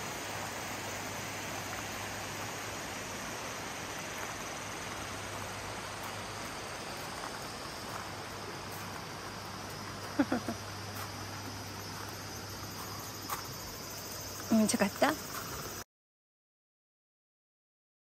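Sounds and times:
stream water rushing: 0:00.0 - 0:14.4.

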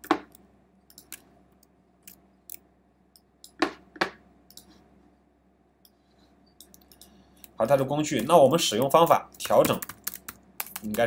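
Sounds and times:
computer mouse clicks: 0:04.5 - 0:04.8
keyboard clicks: 0:08.2 - 0:11.0.

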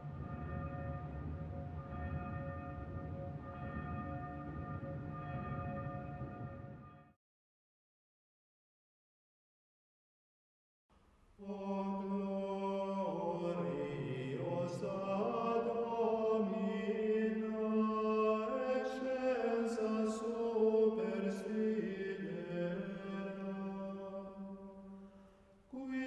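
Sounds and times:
chant-like voices singing chords: 0:11.4 - 0:26.0.

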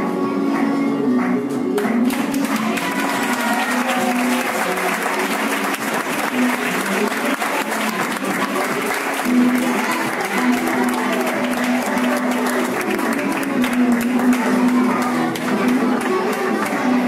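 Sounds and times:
flamenco music: 0:00.0 - 0:17.0
crowd clapping: 0:00.6 - 0:17.0.

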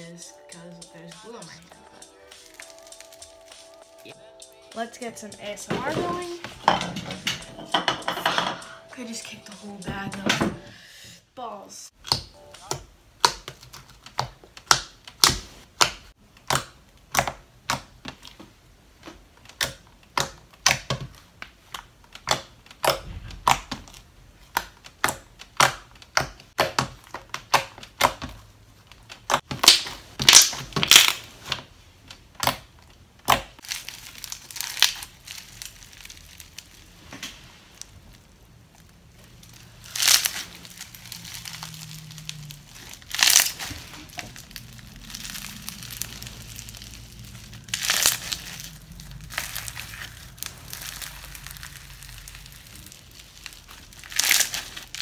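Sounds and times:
slime clicking and popping: 0:19.4 - 0:28.3
floam crackling when squeezed: 0:39.2 - 0:55.0.

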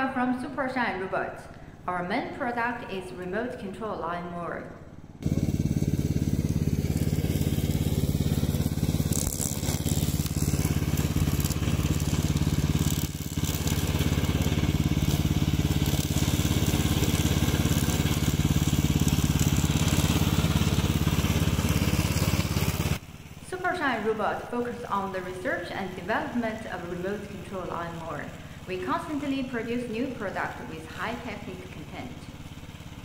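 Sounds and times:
blades cutting dry grass: 0:05.2 - 0:23.0
small petrol engine running: 0:05.2 - 0:33.0.

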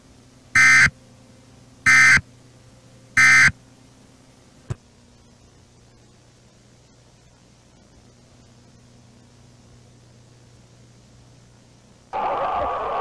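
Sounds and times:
short digital data tone bursts: 0:00.6 - 0:00.9, 0:01.9 - 0:02.2, 0:03.2 - 0:03.5.

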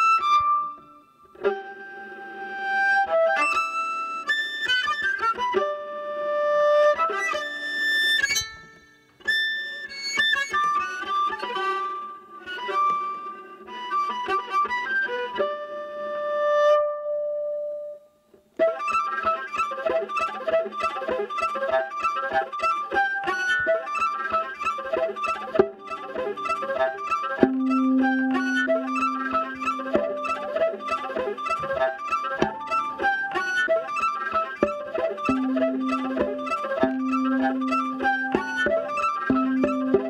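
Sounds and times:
solo viola playing: 0:18.6 - 0:40.0.

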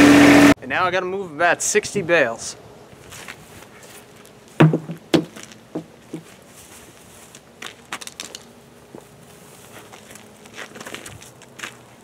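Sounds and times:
footsteps: 0:03.0 - 0:12.0
plastic cone bouncing: 0:04.6 - 0:05.4.

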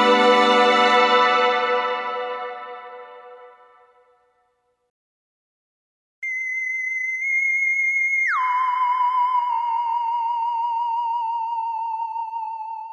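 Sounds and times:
high wavering whistle-like tone: 0:06.2 - 0:12.9.

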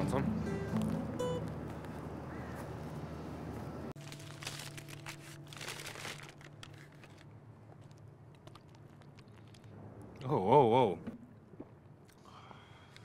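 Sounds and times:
paper bag crinkling: 0:04.0 - 0:09.7.

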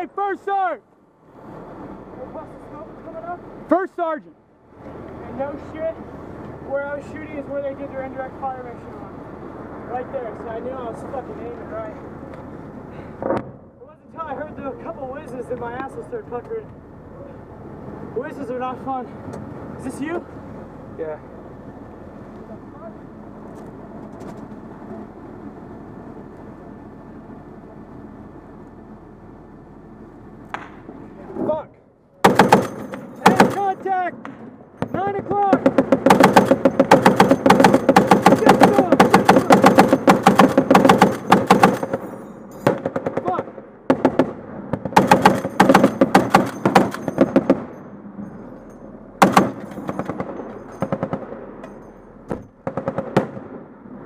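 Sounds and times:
single gunshots: 0:32.2 - 0:33.7, 0:35.6 - 0:47.8, 0:49.2 - 0:51.5, 0:52.6 - 0:53.7
heavy machine gun bursts: 0:32.2 - 0:33.8, 0:35.6 - 0:44.3, 0:44.9 - 0:47.8, 0:49.2 - 0:51.5
vehicle engine running: 0:35.7 - 0:42.4.

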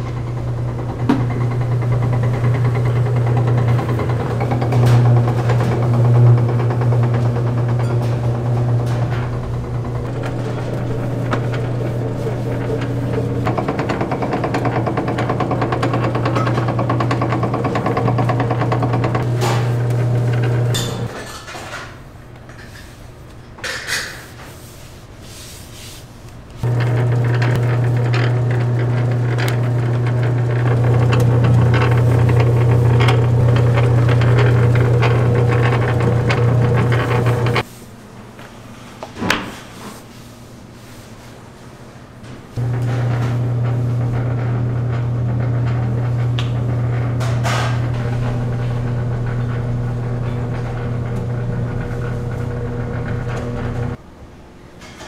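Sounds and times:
dough roller machine motor hum: 0:00.0 - 0:21.2, 0:26.6 - 0:37.7, 0:42.6 - 0:54.0.

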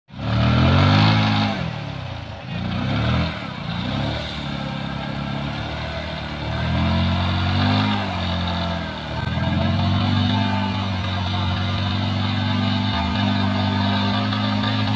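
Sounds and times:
motorcycle engine revving: 0:00.1 - 0:14.9.

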